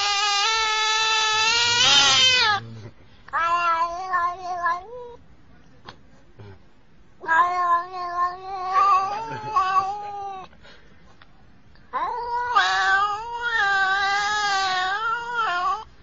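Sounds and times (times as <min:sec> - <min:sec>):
cat meowing yowls: 0:00.0 - 0:02.6, 0:03.3 - 0:05.2, 0:07.2 - 0:10.5, 0:11.9 - 0:15.9.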